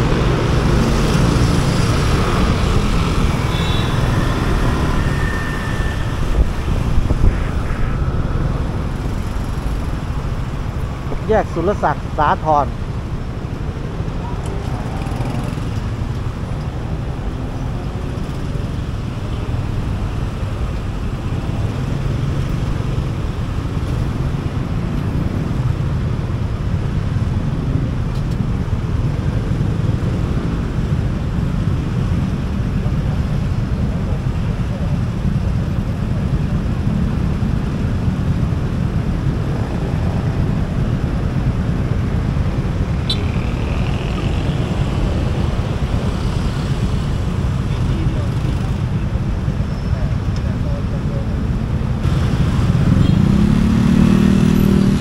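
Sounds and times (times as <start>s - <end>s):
traffic engines rumbling: 0.0s - 55.0s.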